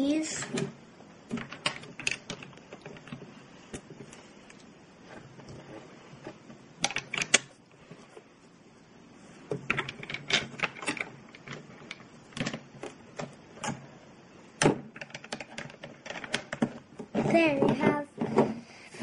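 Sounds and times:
plastic bricks clicking: 0:01.3 - 0:03.2, 0:06.8 - 0:07.5, 0:09.6 - 0:13.8, 0:14.9 - 0:16.8.

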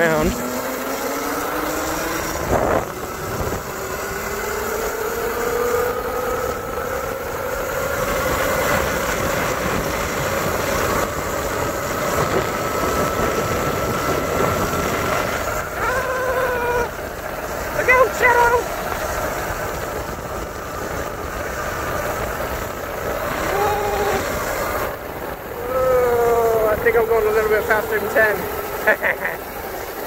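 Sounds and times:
electric motor whine: 0:00.0 - 0:18.6
wind and road noise: 0:00.0 - 0:30.0.

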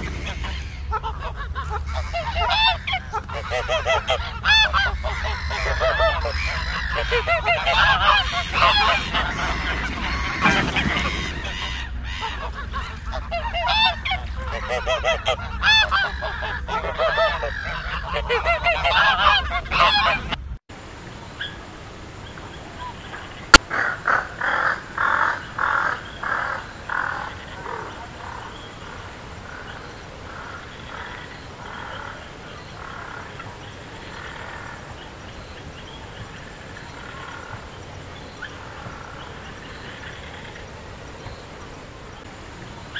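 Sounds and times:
short bird calls: 0:00.0 - 0:20.4
ducks quacking: 0:00.0 - 0:20.6, 0:22.8 - 0:35.1.

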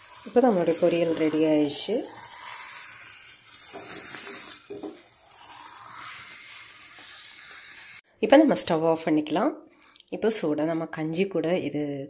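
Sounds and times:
food sizzling in a frying pan: 0:00.0 - 0:08.0
spatula stirring in pan: 0:00.0 - 0:08.0.

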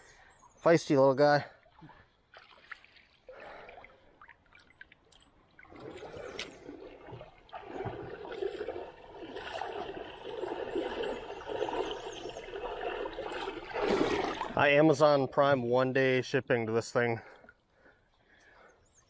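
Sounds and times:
river water gurgling: 0:01.2 - 0:15.6.

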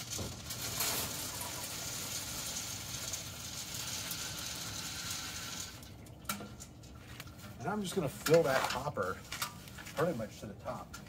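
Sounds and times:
pellets pouring into hopper: 0:00.0 - 0:05.8.

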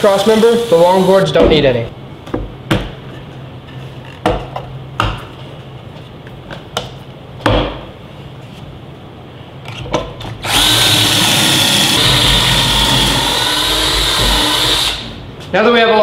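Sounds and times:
cordless drill whining: 0:10.4 - 0:15.1.

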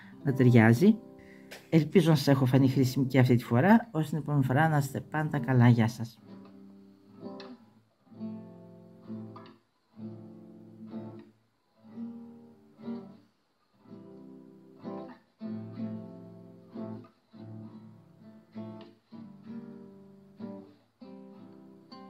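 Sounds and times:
strummed acoustic guitar chords: 0:06.2 - 0:22.0.

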